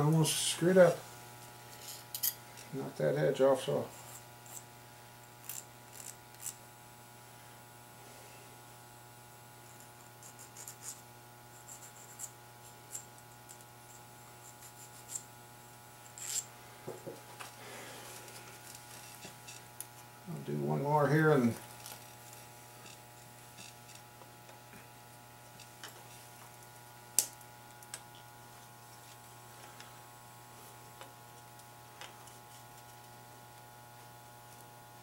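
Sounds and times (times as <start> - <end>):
electrical hum: 0.0 - 35.0
metal parts clicking and scraping: 1.7 - 2.7, 16.1 - 16.5.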